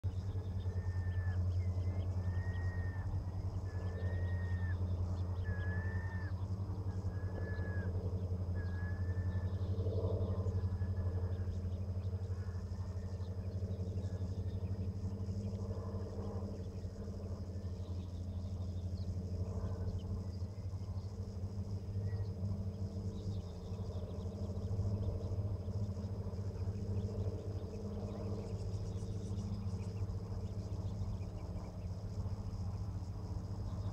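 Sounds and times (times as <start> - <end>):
bird calling: 0.5 - 9.6.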